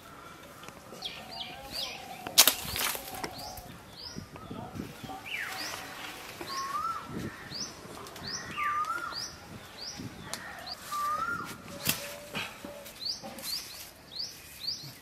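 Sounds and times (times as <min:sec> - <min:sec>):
rustling of branches and leaves: 0:00.0 - 0:15.0
sharp crack: 0:02.3 - 0:03.3.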